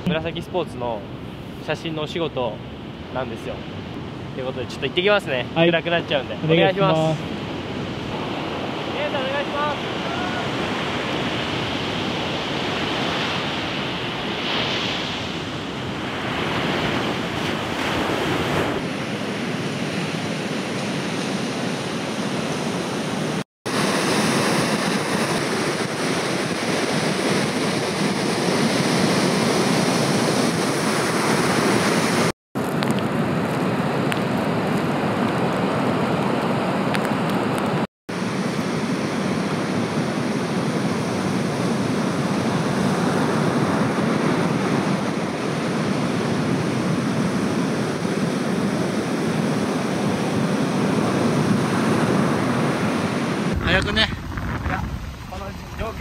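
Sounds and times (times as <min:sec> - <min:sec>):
wind noise on microphone: 0:38.4 - 0:56.0
surf breaking: 0:50.8 - 0:56.0.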